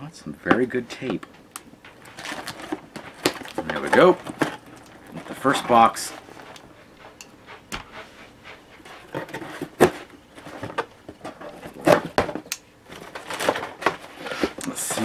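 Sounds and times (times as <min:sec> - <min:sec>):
cardboard rustling and scraping: 0:01.9 - 0:06.7, 0:08.8 - 0:15.0.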